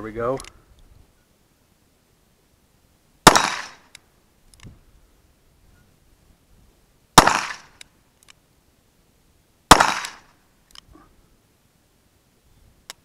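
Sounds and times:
revolver shots with echo: 0:03.3 - 0:03.8, 0:07.2 - 0:07.7, 0:09.7 - 0:10.3
faint clicks: 0:03.9 - 0:04.8, 0:07.8 - 0:08.4, 0:10.6 - 0:10.9.

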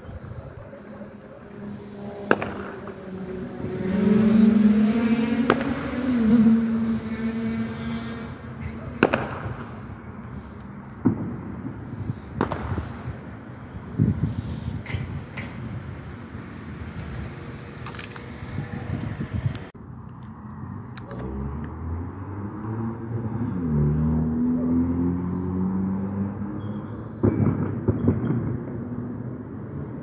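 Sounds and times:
firecrackers banging: 0:02.2 - 0:03.6, 0:05.4 - 0:06.0, 0:08.2 - 0:18.4, 0:27.1 - 0:29.4.

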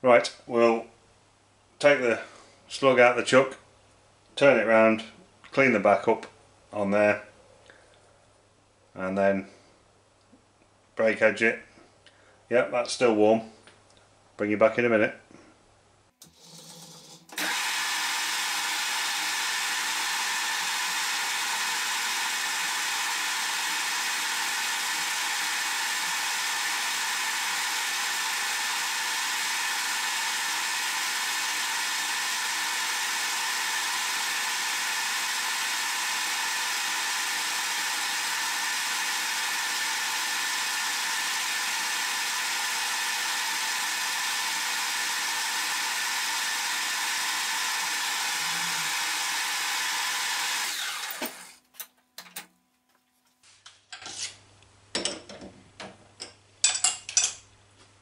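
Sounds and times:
metal lathe motor and gear whine: 0:17.4 - 0:51.5.

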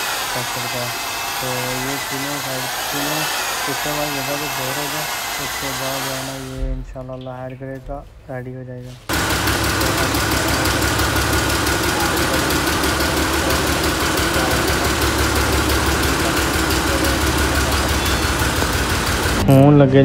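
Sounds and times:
diesel tractor engine idling: 0:09.1 - 0:19.5.

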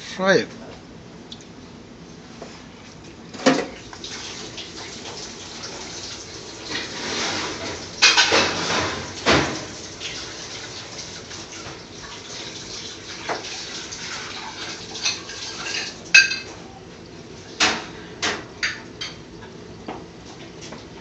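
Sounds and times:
metal utensils clanking on fryer: 0:03.3 - 0:03.8, 0:06.7 - 0:10.8, 0:13.2 - 0:16.7
frying oil hissing: 0:03.7 - 0:16.2.

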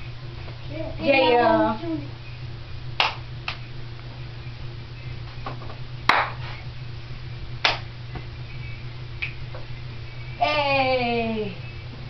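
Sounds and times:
steady low hum: 0:00.0 - 0:12.0
sharp hand claps: 0:03.0 - 0:03.6, 0:06.1 - 0:06.4, 0:07.6 - 0:07.9.

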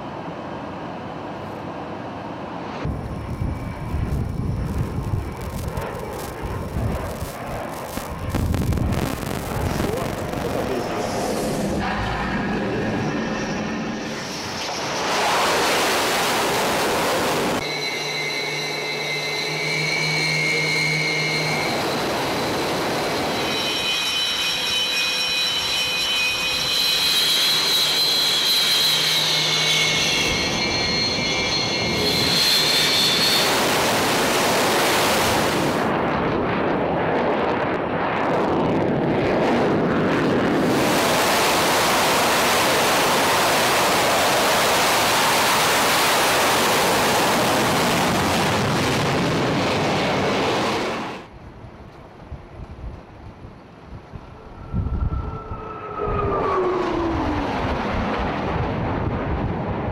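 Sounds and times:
jet turbine whine: 0:00.0 - 0:51.4, 0:53.6 - 0:59.9
loud jet engine noise: 0:00.0 - 0:51.6, 0:53.7 - 0:59.9.

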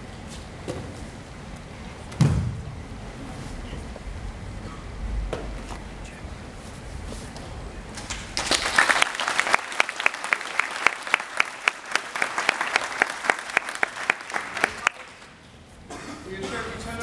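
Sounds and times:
audience applauding: 0:08.1 - 0:15.3.

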